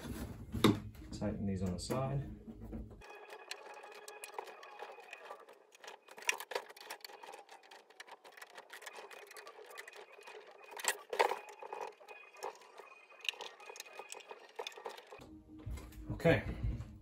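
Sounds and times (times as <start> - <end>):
screwdriver clicking and scraping: 3.0 - 15.2.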